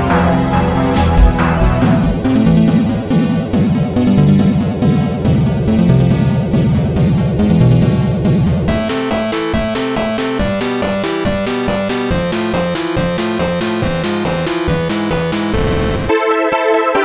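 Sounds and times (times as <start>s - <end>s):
electronic music: 0.4s - 3.0s
wobbling low synth line: 0.7s - 3.0s.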